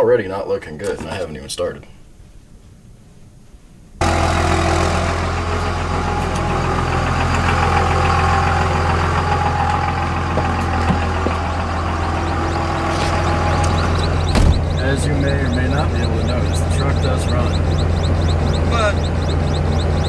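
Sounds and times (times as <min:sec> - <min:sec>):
diesel truck engine idling: 0:04.0 - 0:20.0.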